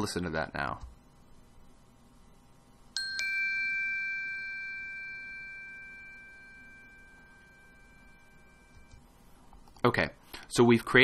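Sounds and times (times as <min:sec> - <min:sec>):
bell ringing: 0:03.0 - 0:09.0.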